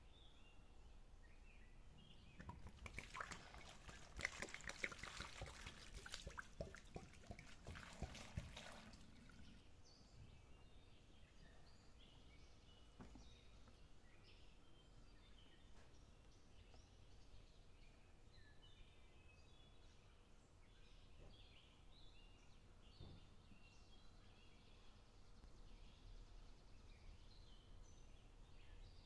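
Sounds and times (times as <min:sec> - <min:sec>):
water splashing on leaves: 0:02.4 - 0:09.4.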